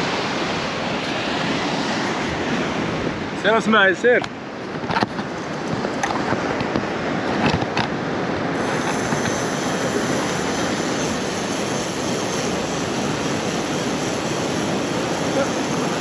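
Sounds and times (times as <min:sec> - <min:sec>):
sea surf rushing: 0:00.0 - 0:16.0
wind on microphone: 0:04.5 - 0:16.0.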